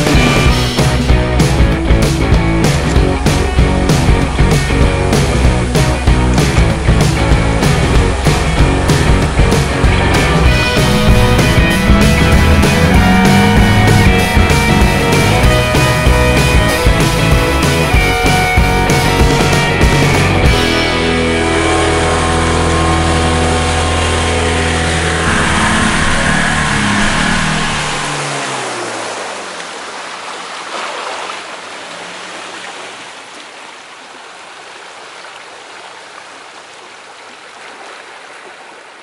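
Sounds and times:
rock music: 0.0 - 28.7
stream rushing: 0.0 - 39.0.

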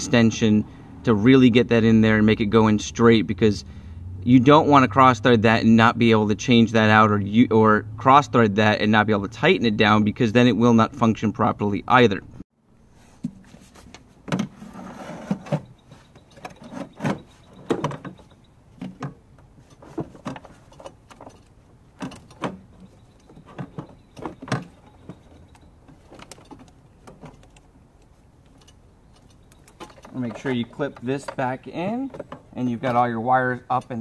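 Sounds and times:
clicks taps and light rattles: 15.7 - 34.0.

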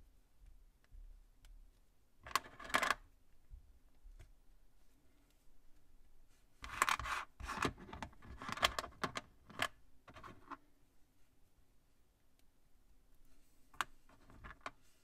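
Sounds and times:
plastic pieces clicking and scraping: 2.2 - 3.0, 6.6 - 10.6, 13.8 - 14.8.

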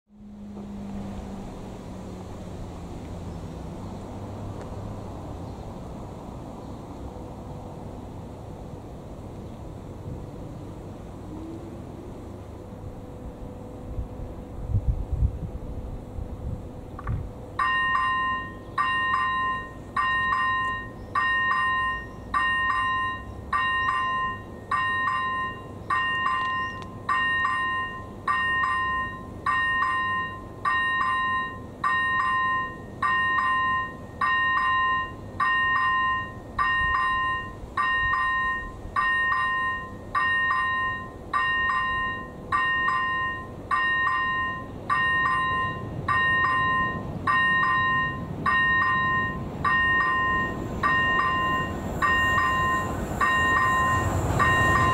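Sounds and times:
level crossing bell ringing: 17.6 - 54.9.

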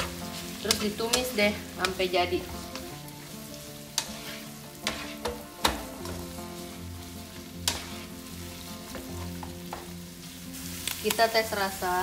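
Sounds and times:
fish sizzling in frying pan: 0.0 - 12.0
spatula scraping pan: 3.9 - 6.8, 7.6 - 9.0.

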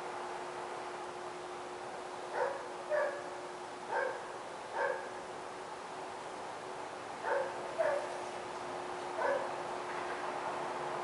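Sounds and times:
faint hum: 0.0 - 11.0
dog barking: 2.3 - 3.3, 3.9 - 5.2, 7.2 - 8.2, 9.2 - 9.5.

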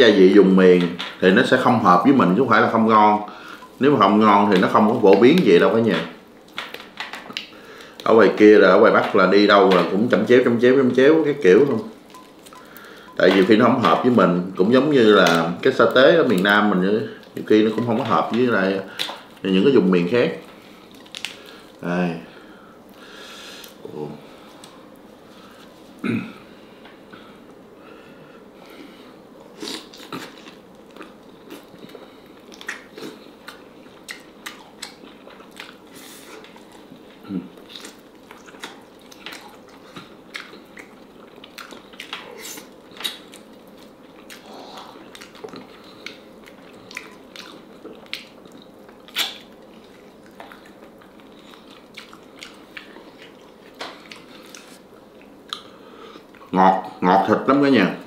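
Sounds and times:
lip smacks and clicks: 4.5 - 8.1, 45.1 - 55.7
wet chewing: 29.6 - 56.5.

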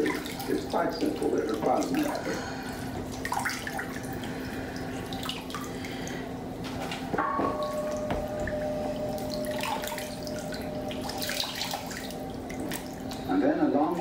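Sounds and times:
water pouring and trickling: 0.0 - 6.4, 7.5 - 14.0
steady low hum: 0.0 - 14.0
knock: 7.2 - 8.3
clear ringing tone: 7.2 - 13.8.

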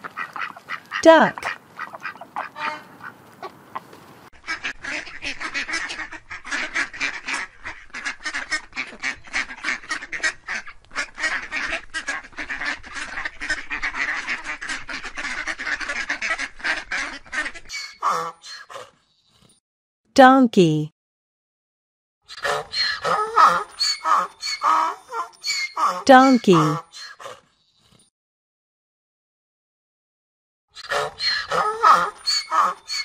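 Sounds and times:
ducks quacking: 0.0 - 18.8, 22.4 - 26.9, 30.8 - 33.0.

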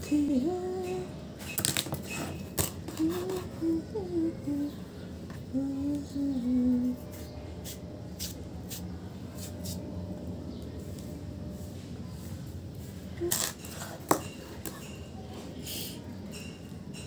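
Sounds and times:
woman humming: 0.0 - 1.1, 2.8 - 4.8, 5.5 - 7.0
low background hum: 0.0 - 17.0.

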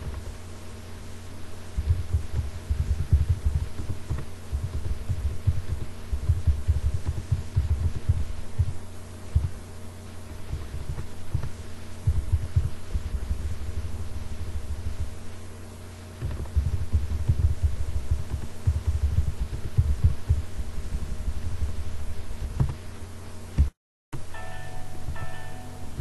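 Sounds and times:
steady electrical hum: 0.0 - 26.0
keyboard typing thumps: 1.8 - 8.8, 16.2 - 21.1.

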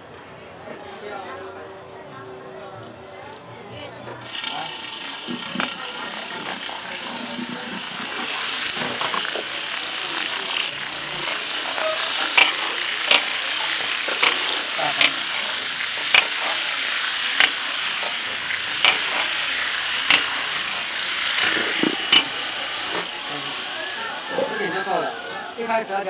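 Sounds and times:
sausages sizzling in oil: 4.2 - 26.0
metal spatula clacking on wok: 12.3 - 13.4, 16.1 - 16.6, 18.8 - 19.4.

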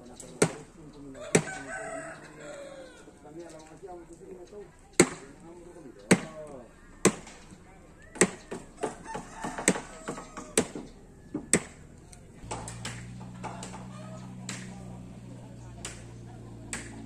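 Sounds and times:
rooster crowing: 1.2 - 3.2, 8.8 - 11.9, 13.2 - 15.1.

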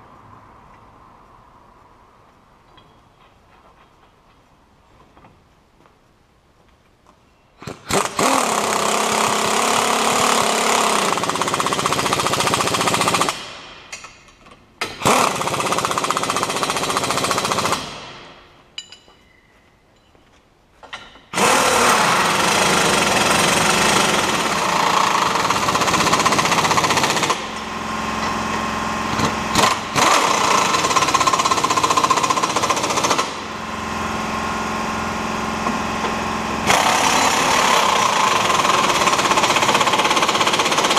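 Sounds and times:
pneumatic impact wrench hammering: 7.6 - 18.5, 21.0 - 40.9.

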